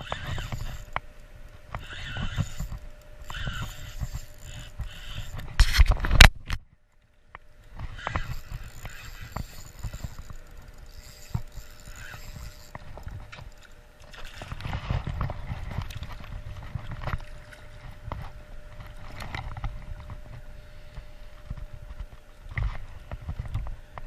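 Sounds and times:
water lapping and sloshing: 0:06.8 - 0:23.7.

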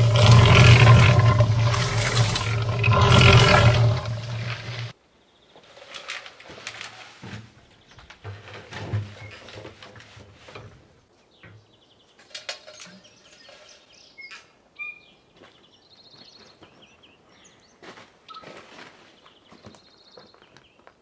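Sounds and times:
low hum: 0:00.0 - 0:04.9
wheelbarrow and mixer clattering: 0:00.0 - 0:04.9.

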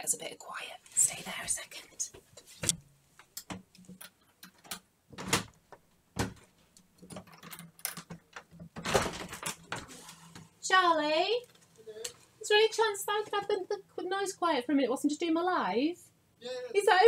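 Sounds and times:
irregular knocks and clicks: 0:02.6 - 0:09.8.

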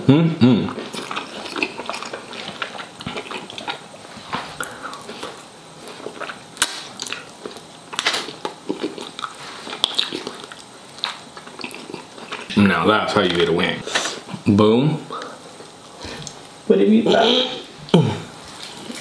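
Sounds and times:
chewing: 0:00.7 - 0:12.5, 0:17.9 - 0:19.0.

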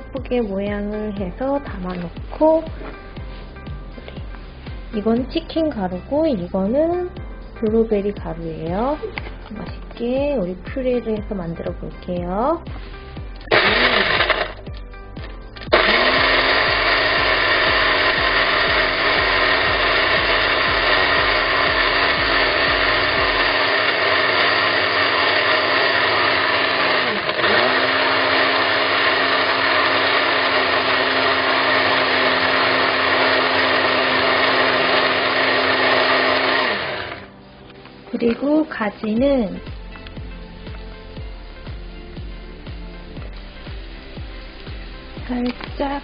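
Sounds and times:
blender motor whirring: 0:13.5 - 0:14.8, 0:15.6 - 0:37.4.

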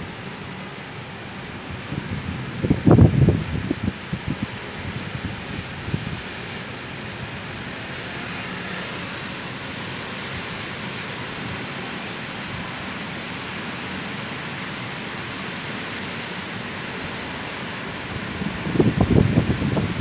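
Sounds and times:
strong wind and rain: 0:00.0 - 0:20.0.

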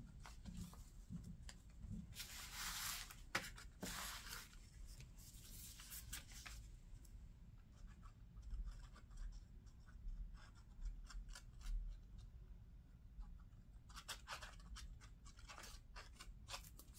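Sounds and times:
paper rustling and scraping: 0:00.2 - 0:06.7.

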